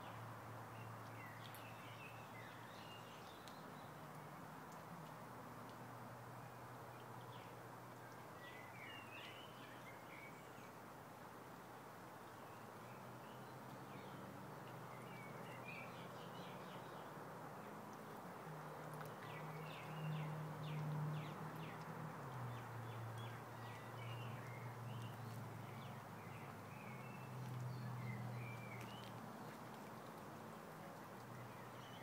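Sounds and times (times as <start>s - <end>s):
birds chirping: 18.8s - 29.6s.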